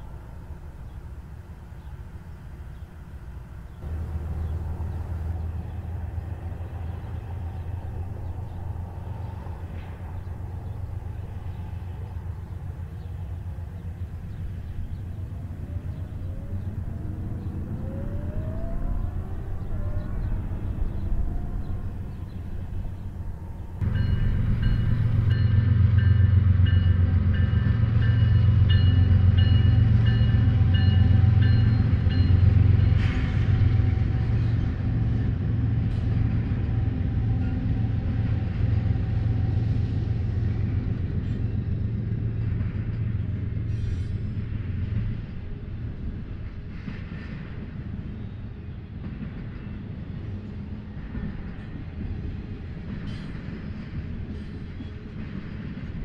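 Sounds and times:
locomotive engine drone: 0.0 - 56.0
passing train rumble: 0.0 - 56.0.

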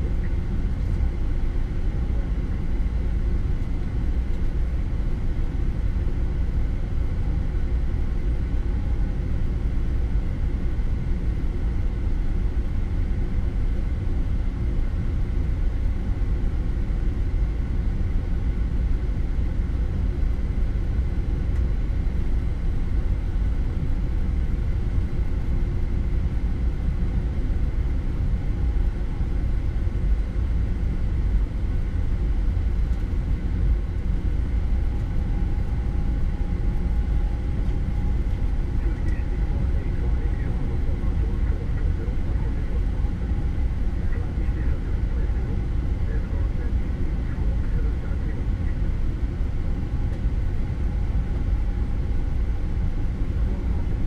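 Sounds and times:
aircraft engines rumbling: 0.0 - 54.0
thin steady whine: 0.0 - 54.0.

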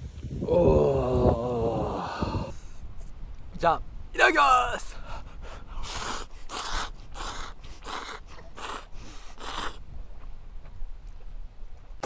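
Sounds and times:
person slurping noodles: 5.8 - 9.8.

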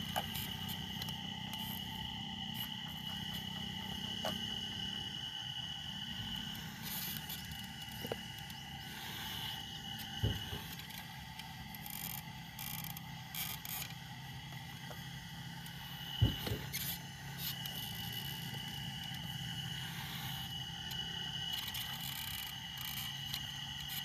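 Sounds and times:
low motor hum: 0.0 - 24.0
thump: 10.2 - 10.7, 16.2 - 16.7.

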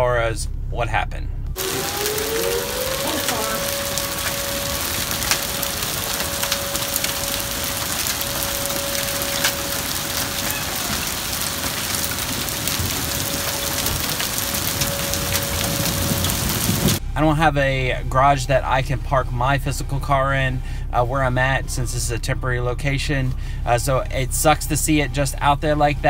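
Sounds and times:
hailstones ticking: 1.6 - 17.0
steady hiss of rain: 1.6 - 17.0.

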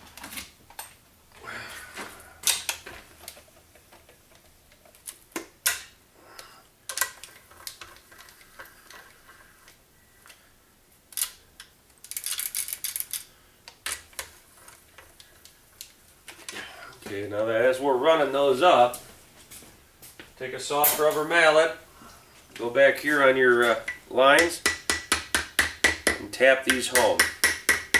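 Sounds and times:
socket knocking on bolts: 24.4 - 27.9.

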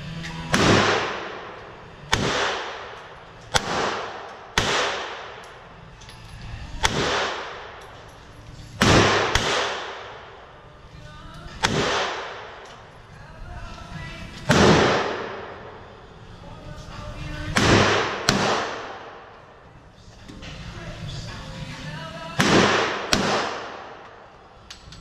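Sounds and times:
pistol shots with echo: 0.5 - 5.7, 6.8 - 8.0, 8.8 - 10.6, 11.6 - 12.9, 14.5 - 16.0, 17.5 - 19.5, 22.3 - 24.4.

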